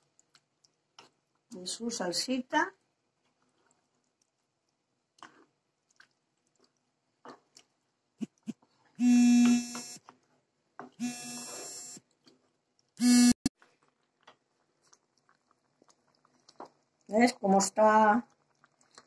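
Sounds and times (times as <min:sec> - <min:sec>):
electronic buzzer: 0:09.0 - 0:10.0, 0:11.0 - 0:12.0, 0:13.0 - 0:13.5.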